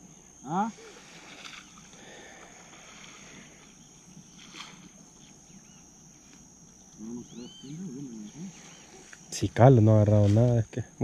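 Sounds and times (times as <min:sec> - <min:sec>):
high-pitched insect buzz: 0:00.0 - 0:11.0
faint bird chirps: 0:03.6 - 0:09.4.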